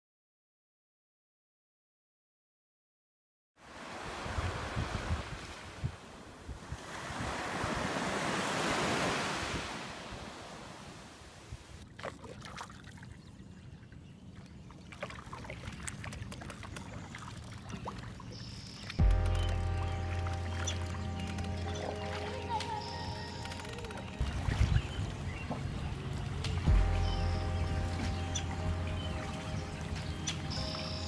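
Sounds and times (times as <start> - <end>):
small waves washing on sand: 3.6 - 11.7
small splashes and ticks: 11.8 - 13.4, 14.3 - 26.6.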